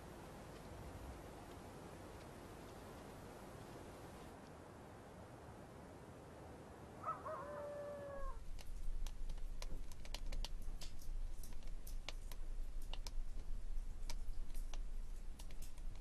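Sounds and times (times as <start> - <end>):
wood fire crackling in stove: 8.4 - 16.0.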